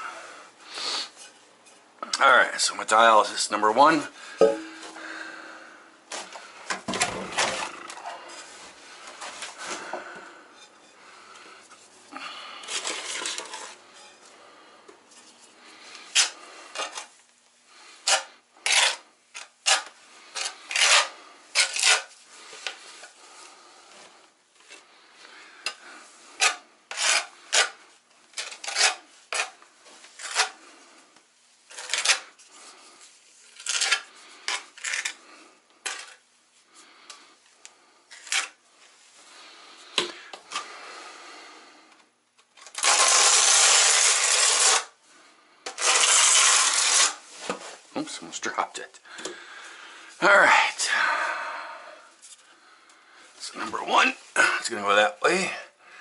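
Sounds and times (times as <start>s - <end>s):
trowel scraping mortar on tile: 7.0s - 8.6s, 12.6s - 14.2s, 15.4s - 17.2s, 17.8s - 23.2s, 25.7s - 30.8s, 31.7s - 32.6s, 33.4s - 36.2s, 38.1s - 38.6s, 42.7s - 45.0s, 45.7s - 47.6s.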